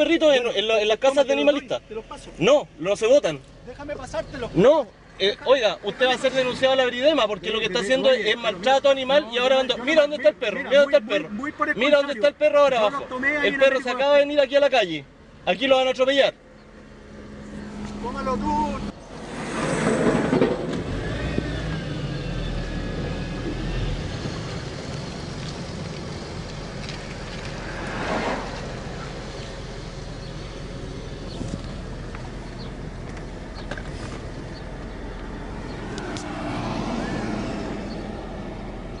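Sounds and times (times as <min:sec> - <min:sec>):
engine rumble: 0:00.0 - 0:39.0
road hiss: 0:16.5 - 0:39.0.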